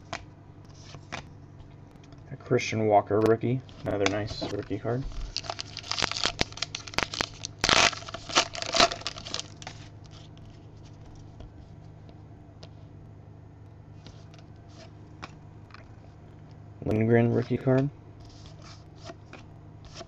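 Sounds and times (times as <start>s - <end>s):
trading cards rustling: 3.7s - 12.0s.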